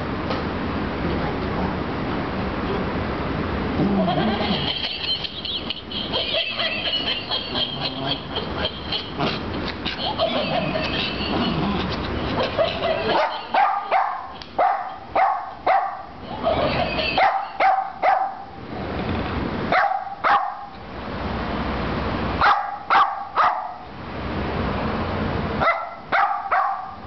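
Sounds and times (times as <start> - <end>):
small dog barking: 12.4 - 16.1, 17.0 - 18.6, 19.7 - 20.8, 22.4 - 23.9, 25.6 - 27.0.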